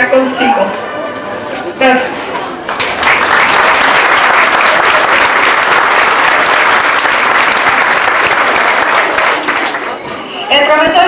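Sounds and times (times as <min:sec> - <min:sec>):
audience applauding: 0:02.6 - 0:10.1.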